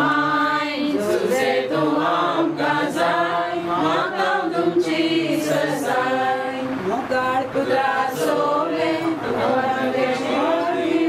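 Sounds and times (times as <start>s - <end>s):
choir singing a hymn: 0.0s - 11.0s.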